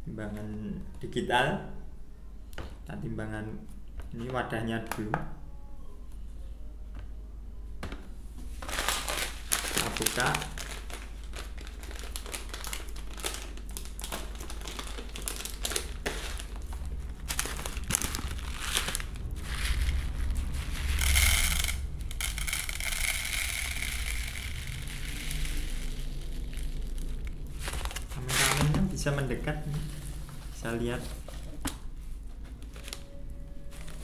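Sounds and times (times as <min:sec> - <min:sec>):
plastic bag crinkling: 0:08.6 - 0:29.1
dry feed pouring into tub: 0:20.8 - 0:27.8.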